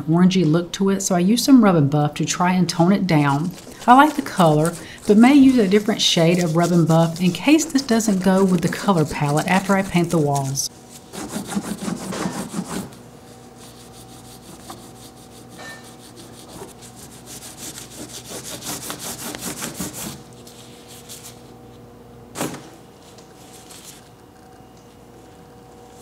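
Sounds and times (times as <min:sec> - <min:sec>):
cloth rubbing on wood: 0:03.2 - 0:21.4.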